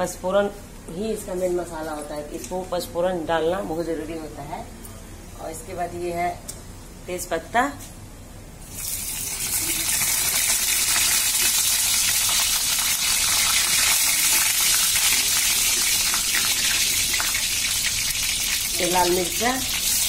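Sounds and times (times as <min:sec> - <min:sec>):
spices sizzling in hot oil: 0:08.6 - 0:20.0.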